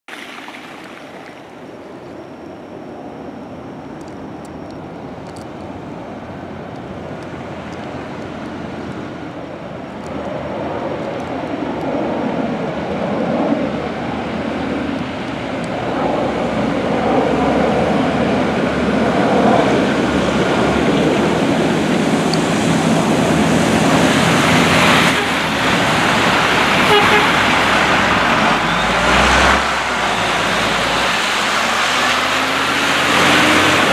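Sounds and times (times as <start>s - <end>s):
plow blade scraping snowy road: 10.2s - 33.9s
truck engine running: 21.9s - 31.7s.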